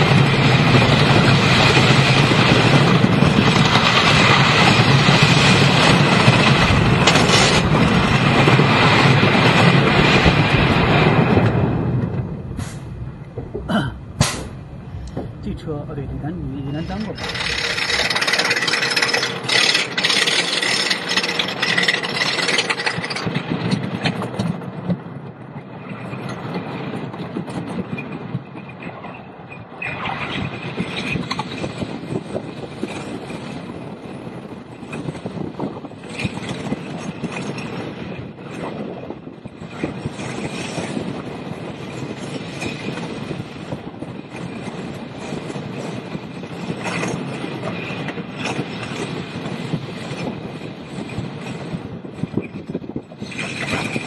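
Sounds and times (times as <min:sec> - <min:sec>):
roller coaster rattling on track: 0:00.0 - 0:54.0.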